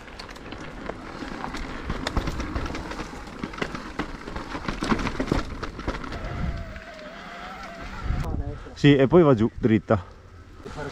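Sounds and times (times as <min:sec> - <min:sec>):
bike tyre rumble: 0:00.0 - 0:08.7
knocks and rattles: 0:01.8 - 0:06.6.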